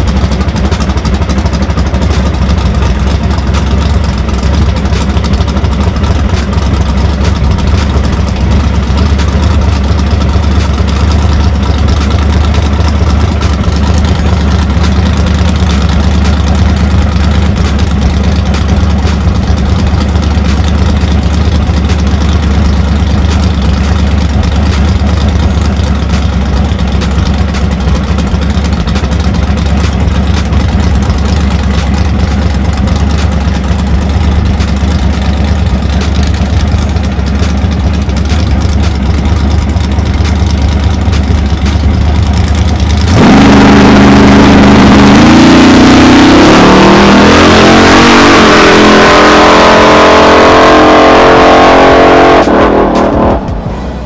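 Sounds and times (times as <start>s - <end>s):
truck engine idling: 0.0s - 48.2s, 52.6s - 54.0s
engine revving at full throttle: 0.0s - 54.0s.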